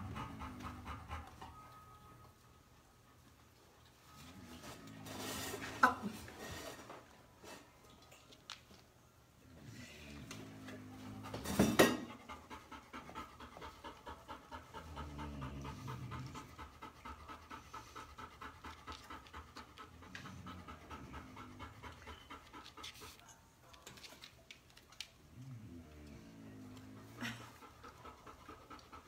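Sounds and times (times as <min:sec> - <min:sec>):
puppy panting: 0:00.0 - 0:01.8, 0:11.0 - 0:24.4, 0:26.8 - 0:29.0.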